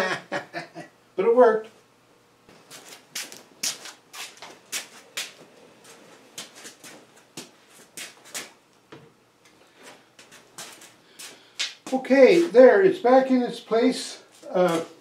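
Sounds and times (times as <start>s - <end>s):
footsteps scuffing on concrete: 2.5s - 8.6s, 9.9s - 12.5s, 14.3s - 15.0s.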